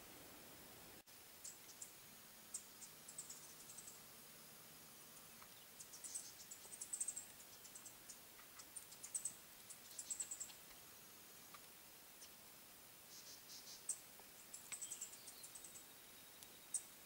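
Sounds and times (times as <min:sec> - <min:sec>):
small bird chips and twitters: 0:01.4 - 0:04.0, 0:05.3 - 0:10.8, 0:13.1 - 0:17.0.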